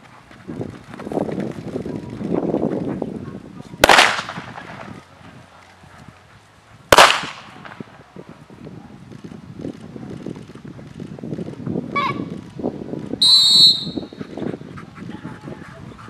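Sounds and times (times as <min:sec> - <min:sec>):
loud sharp cracks: 0:03.8 - 0:04.9, 0:06.9 - 0:07.8.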